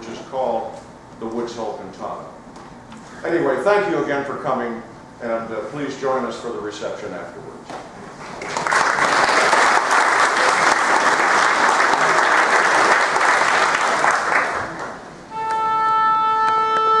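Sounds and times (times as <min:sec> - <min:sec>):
audience applauding: 0:08.2 - 0:15.1
held instrument note: 0:15.3 - 0:17.0.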